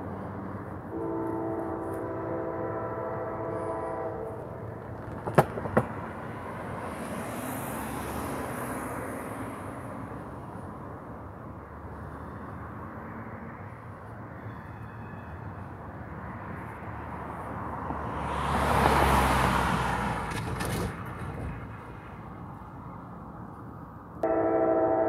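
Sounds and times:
locomotive air horn: 0:00.9 - 0:04.7, 0:24.2 - 0:25.0
wheels thumping on rails: 0:04.8 - 0:06.1.

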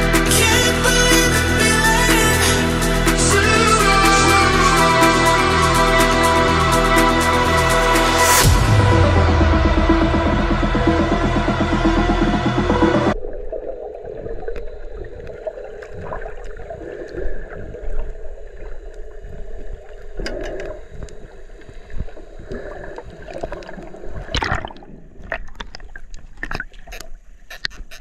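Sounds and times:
muffled underwater rush: 0:08.3 - 0:26.7
bubbling: 0:13.2 - 0:28.0
sharp clicks and crackles: 0:19.8 - 0:22.6, 0:25.2 - 0:28.0.

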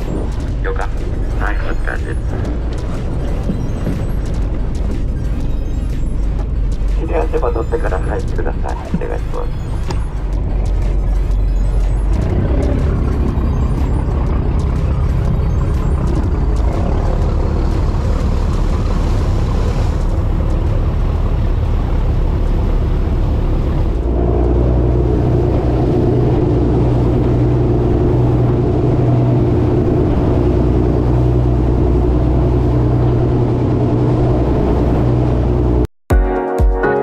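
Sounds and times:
boat engine running: 0:00.0 - 0:35.9
water rushing in wake: 0:00.0 - 0:35.9.

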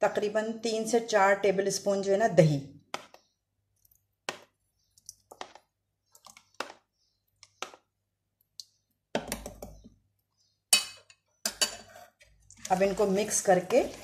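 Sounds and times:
spoon scraping plastic tub: 0:11.6 - 0:14.0.

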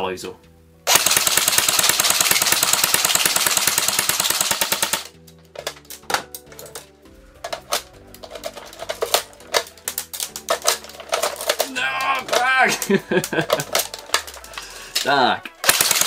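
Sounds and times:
background music: 0:00.0 - 0:16.0
airsoft gun full-auto burst: 0:00.9 - 0:05.2, 0:15.6 - 0:16.0.

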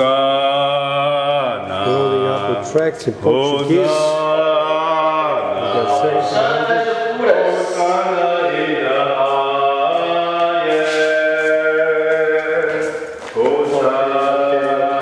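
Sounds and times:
person singing with music: 0:03.3 - 0:15.0.

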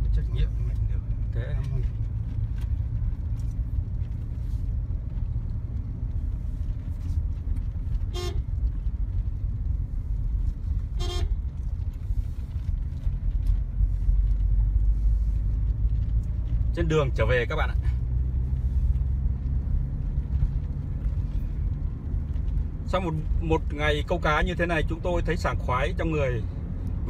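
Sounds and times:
car road and engine rumble: 0:00.0 - 0:27.0
car horn toots: 0:08.1 - 0:08.5, 0:10.9 - 0:11.4.

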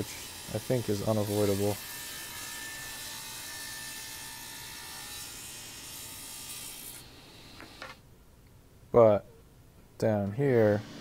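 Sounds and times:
table saw ripping a board: 0:00.0 - 0:08.0.

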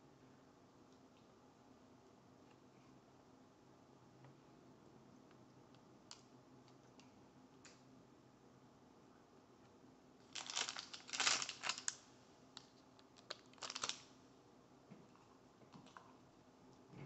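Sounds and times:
plastic pouch crinkling: 0:10.2 - 0:12.0, 0:12.6 - 0:14.1.

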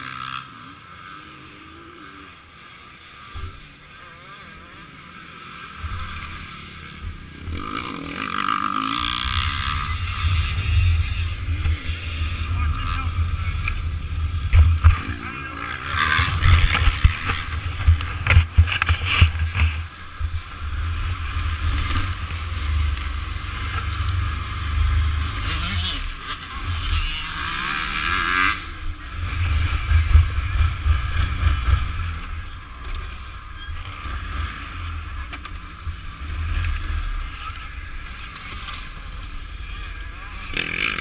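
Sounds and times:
muffled engine noise: 0:00.6 - 0:41.0
low microphone rumble: 0:09.4 - 0:25.6.

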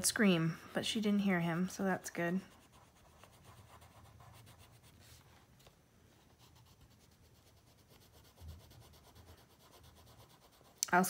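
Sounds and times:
pencil scratching on paper: 0:02.4 - 0:05.2, 0:06.2 - 0:11.0.

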